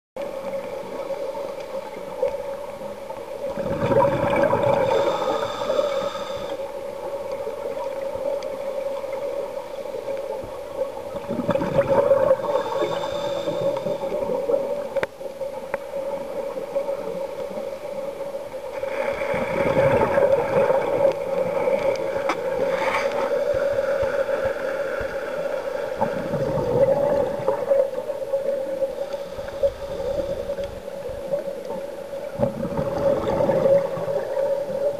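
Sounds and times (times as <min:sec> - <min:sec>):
steady hum: 0:00.9 - 0:07.3, 0:09.6 - 0:15.3
exhaled bubbles rushing: 0:03.4 - 0:05.6, 0:11.0 - 0:14.8, 0:18.9 - 0:23.2, 0:26.0 - 0:28.6, 0:32.2 - 0:34.9.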